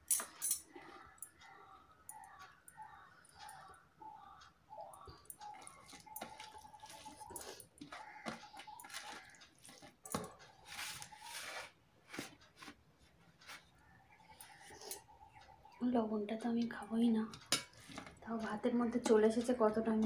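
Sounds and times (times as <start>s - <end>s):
rice squishing with fingers: 0.8s - 12.8s.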